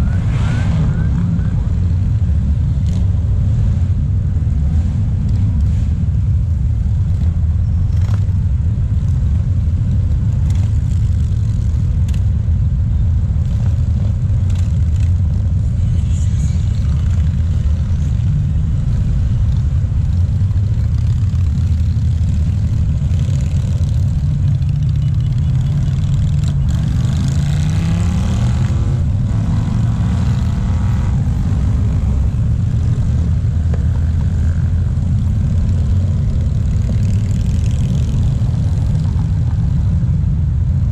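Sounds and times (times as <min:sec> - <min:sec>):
motorcycles passing rumble: 0:00.0 - 0:40.9
motorcycle engine revving: 0:13.4 - 0:39.9.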